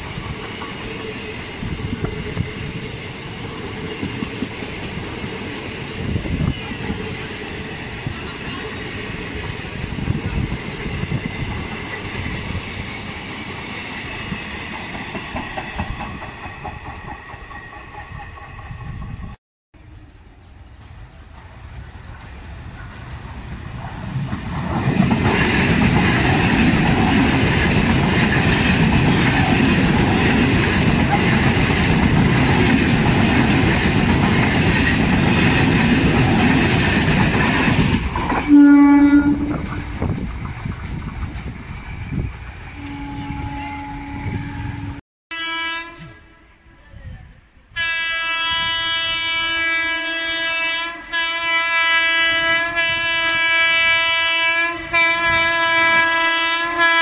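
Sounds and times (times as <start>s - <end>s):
electric train passing: 0.0s - 45.0s
long steady train horn: 38.4s - 39.9s, 42.8s - 57.0s
short train horn blasts: 38.4s - 39.9s, 42.8s - 46.6s, 47.7s - 57.0s.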